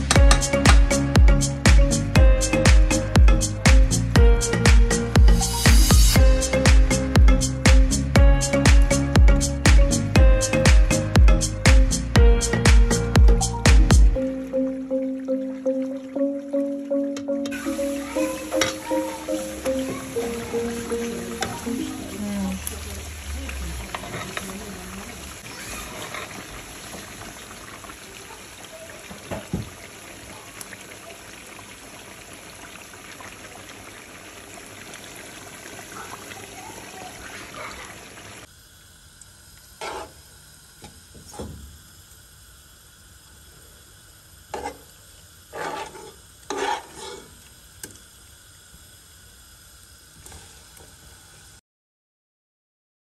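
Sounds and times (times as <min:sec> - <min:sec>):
meat sizzling and bubbling: 0:00.0 - 0:51.6
spoon scraping and knocking pot: 0:44.6 - 0:44.8, 0:45.6 - 0:47.3.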